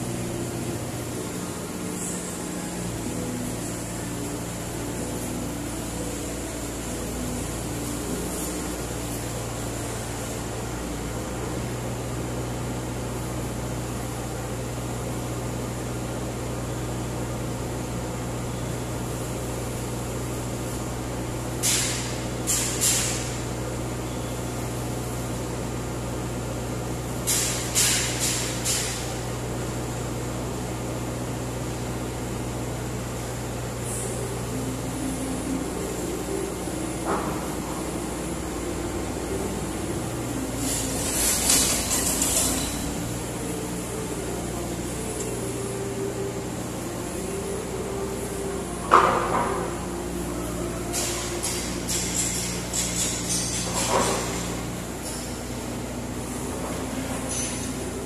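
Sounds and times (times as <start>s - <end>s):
excavator diesel engine idling: 0.0s - 58.0s
sharp metal clanks: 51.0s - 55.4s.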